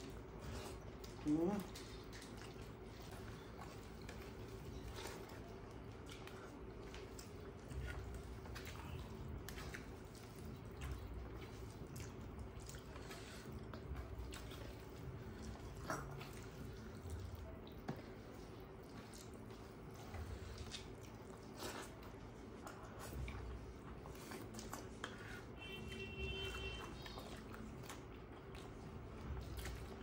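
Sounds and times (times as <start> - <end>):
chewing: 0.0 - 30.0
wet squishing of food: 0.0 - 30.0.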